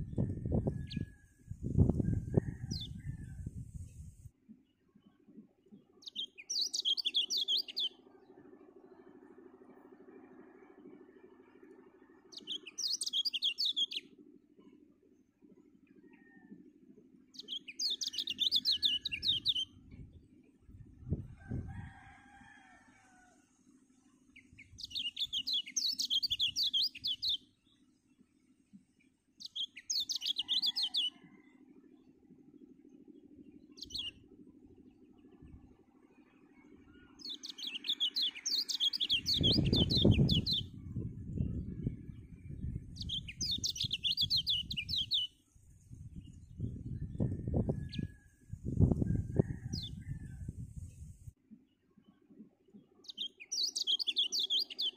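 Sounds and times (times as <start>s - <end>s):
bird twittering warble: 0.0s - 4.2s, 5.0s - 11.4s, 12.0s - 14.8s, 36.6s - 51.3s, 52.0s - 54.9s.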